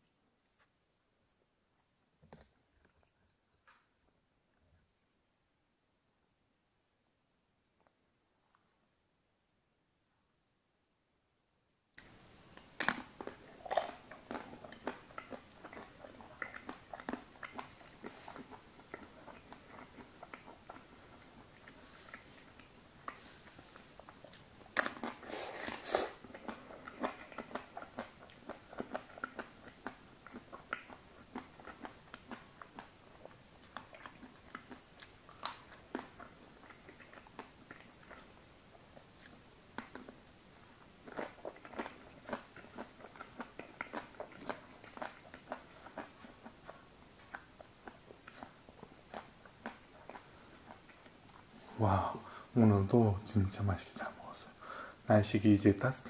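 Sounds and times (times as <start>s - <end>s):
chewing ice cream bar: 12.0s - 51.8s.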